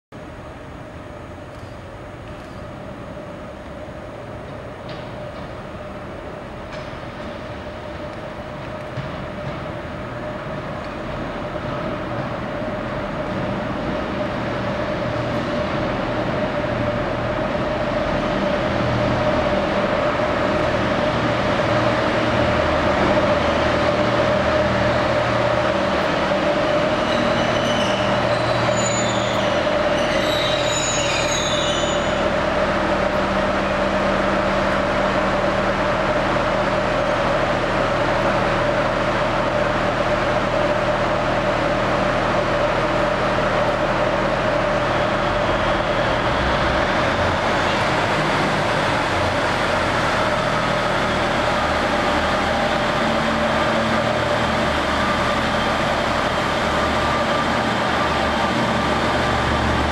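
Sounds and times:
train engine: 0.2s - 59.9s
train brakes squealing: 26.6s - 32.6s.

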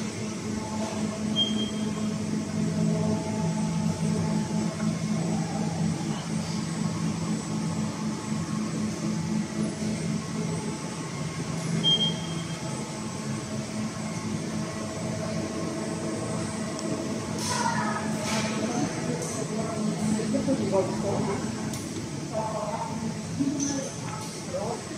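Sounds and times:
factory machinery hum: 0.0s - 24.9s
high beep: 1.4s - 1.9s, 11.8s - 12.6s.

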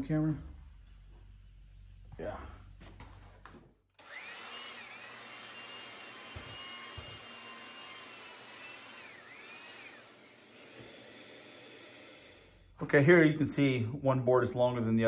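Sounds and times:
belt sander sanding wood: 4.0s - 12.5s
dust extraction vacuum rushing: 4.0s - 12.6s.

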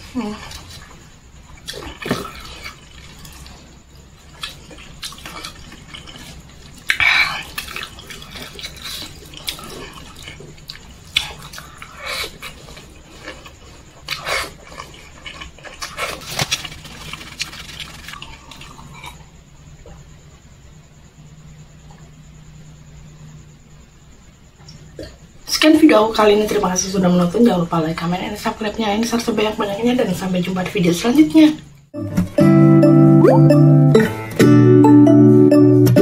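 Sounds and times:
wet chewing and lip-smacking: 0.4s - 19.3s.

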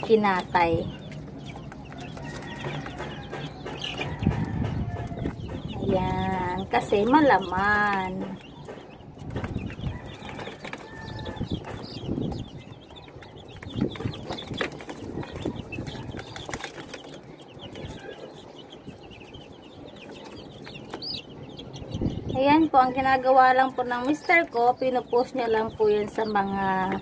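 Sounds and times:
chicks peeping: 0.0s - 27.0s
rustles and knocks in cage: 1.1s - 18.2s.

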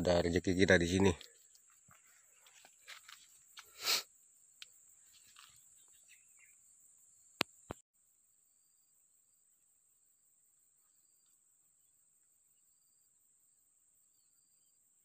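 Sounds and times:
insects shrilling: 0.0s - 6.6s.

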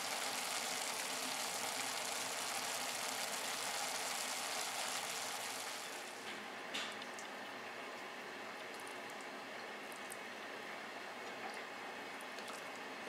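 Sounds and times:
food sizzling in a frying pan: 0.0s - 6.2s.

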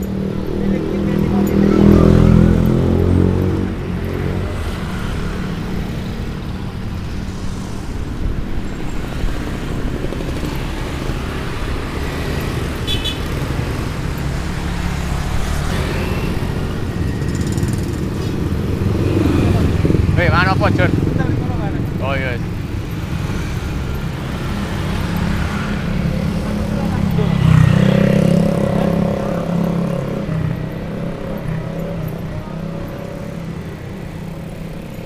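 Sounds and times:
motorbike engine: 0.0s - 35.0s
road rumble: 0.0s - 35.0s
motorcycle engine passing: 0.1s - 31.2s
wind noise: 5.8s - 12.4s.

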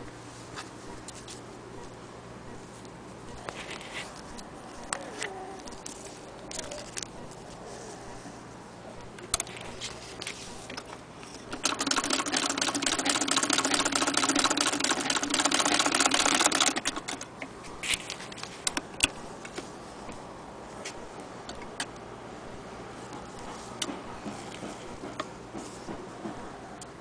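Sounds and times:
sewing machine clattering: 11.5s - 17.3s
sewing machine clicks: 11.5s - 17.3s.

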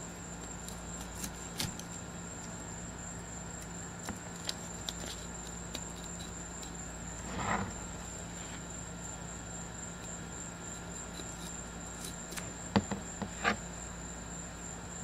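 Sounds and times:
scraping rustle on board: 7.2s - 8.7s, 10.8s - 13.6s.

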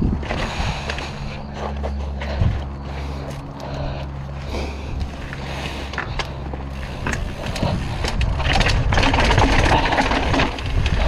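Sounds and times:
wind on microphone: 0.0s - 1.4s, 6.9s - 11.0s
bike rattling over rocks: 0.0s - 11.0s.

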